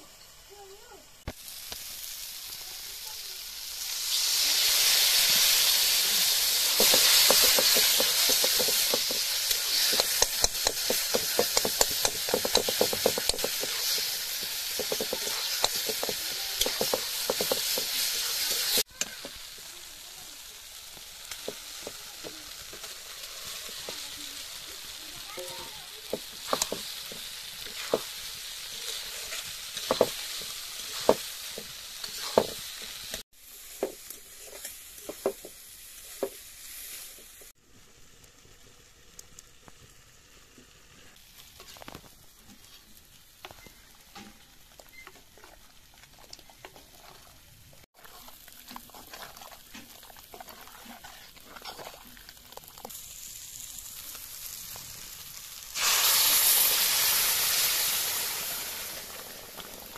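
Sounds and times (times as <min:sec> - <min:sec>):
eggs sizzling in a pan: 0:00.0 - 0:59.9
metal spatula scraping a pan: 0:04.8 - 0:19.3, 0:26.1 - 0:33.2, 0:34.0 - 0:35.3, 0:48.0 - 0:52.6.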